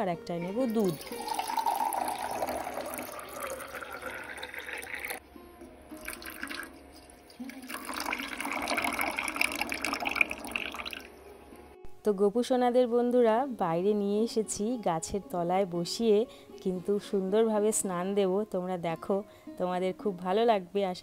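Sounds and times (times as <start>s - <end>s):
milk pouring into metal pot: 0.8s - 5.2s, 6.0s - 11.1s
water pouring into metal pot: 0.8s - 5.2s, 6.0s - 11.1s.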